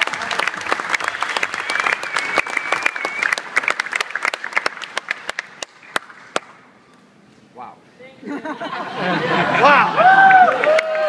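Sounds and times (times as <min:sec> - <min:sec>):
audience applauding: 0:00.0 - 0:06.5, 0:09.6 - 0:11.0
person whistling: 0:01.6 - 0:03.4.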